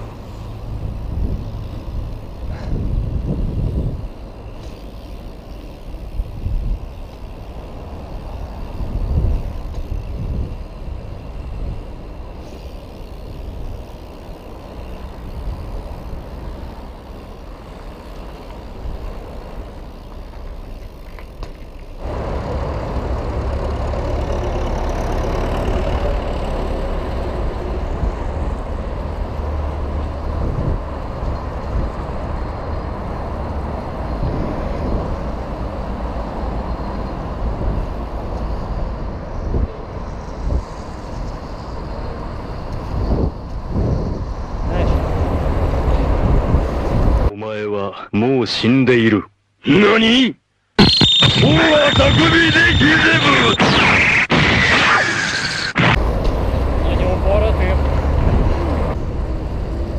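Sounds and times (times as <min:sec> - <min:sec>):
bike tyres rumbling on road: 0:00.0 - 0:47.3, 0:54.8 - 0:59.9
wind rush on microphone: 0:00.7 - 0:04.1, 0:08.4 - 0:12.0, 0:30.0 - 0:33.2, 0:33.8 - 0:35.4, 0:38.6 - 0:47.3, 0:57.8 - 0:59.9.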